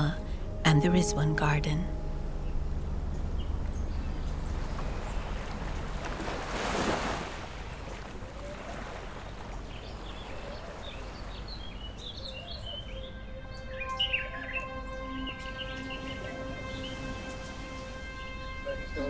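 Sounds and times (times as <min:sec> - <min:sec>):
birds chirping: 0:00.0 - 0:06.4, 0:07.7 - 0:19.0
soft background music: 0:00.0 - 0:06.6, 0:11.8 - 0:19.0.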